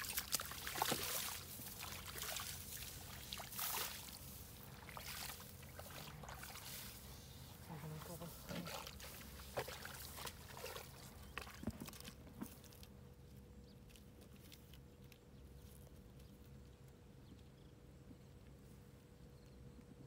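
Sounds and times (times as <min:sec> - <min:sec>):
footsteps squelching in mud: 0:00.0 - 0:07.0, 0:08.1 - 0:13.0
faint steady hum: 0:00.0 - 0:20.0.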